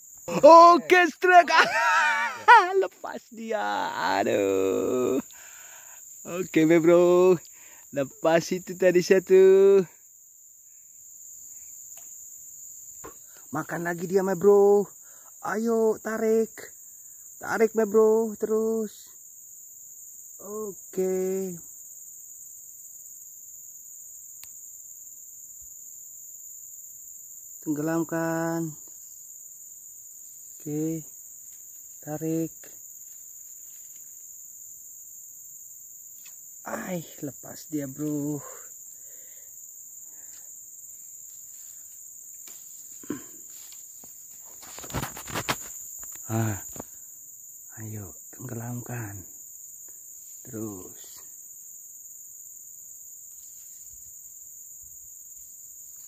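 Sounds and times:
insects chirring: 0.0 - 56.0
faint click: 24.4 - 24.6
sharp rustles and knocks: 42.4 - 46.2.

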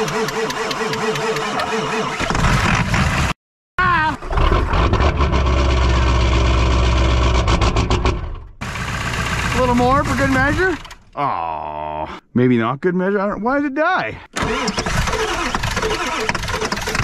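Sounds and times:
starter motor cranking: 0.0 - 3.2, 8.6 - 11.1, 14.3 - 17.0
diesel engine rumbling: 3.8 - 11.2.

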